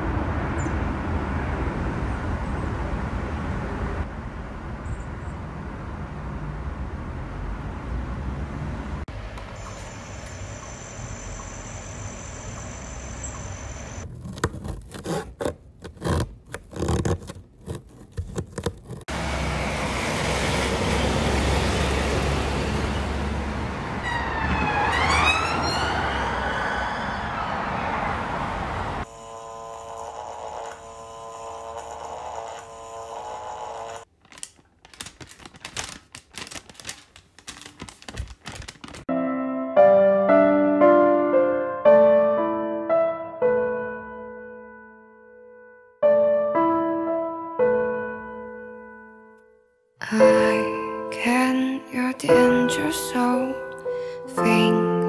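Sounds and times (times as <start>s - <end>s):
car passing by: 5.6s - 10.0s, 19.1s - 29.0s
plastic sheet crinkling: 34.1s - 39.1s.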